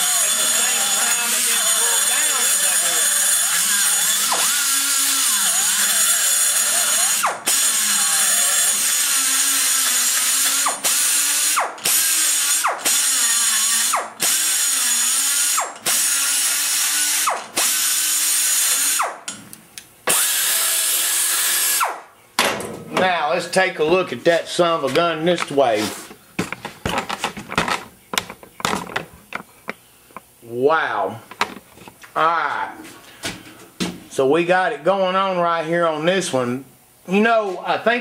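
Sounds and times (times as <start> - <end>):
die grinder whining: 0.0 - 19.2, 20.1 - 22.0.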